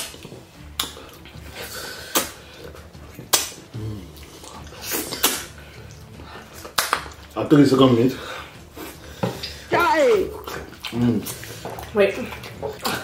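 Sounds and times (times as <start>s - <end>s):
wet eating smacks and clicks: 0.0s - 7.6s, 8.5s - 13.0s.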